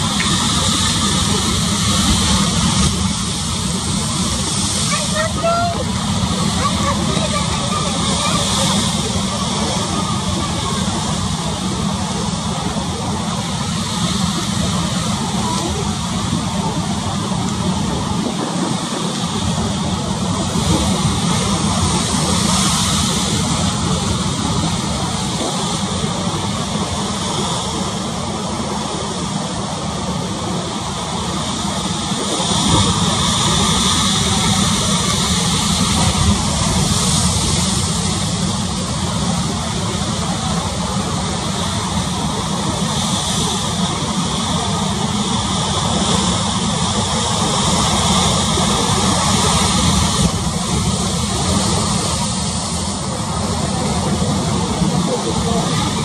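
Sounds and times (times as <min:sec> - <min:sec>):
choppy sea rushing: 0:00.0 - 0:56.0.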